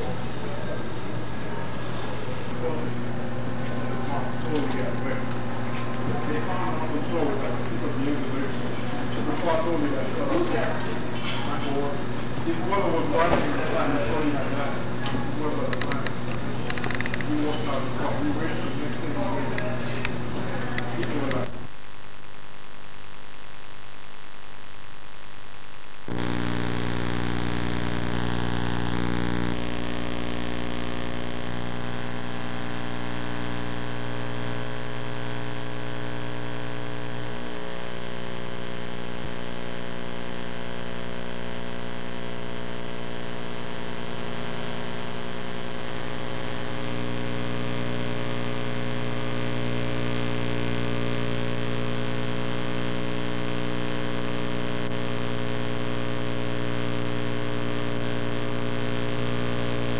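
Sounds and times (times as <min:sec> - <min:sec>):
electrical mains hum: 0:00.0 - 0:59.9.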